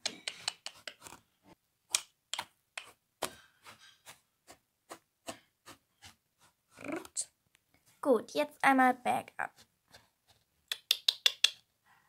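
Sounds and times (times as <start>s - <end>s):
toy hooves tapping on floor: 10.7s - 11.6s.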